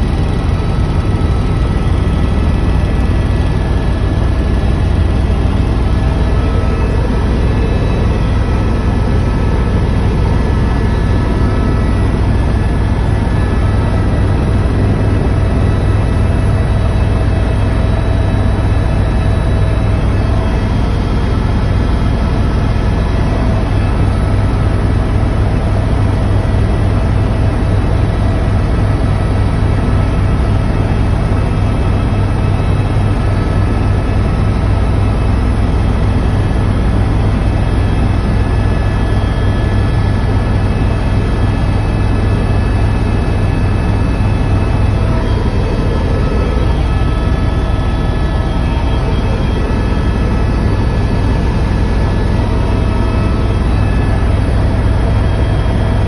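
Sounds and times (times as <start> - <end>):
helicopter rotor and engine drone: 0.0 - 56.0
faint whining tones: 43.0 - 55.8.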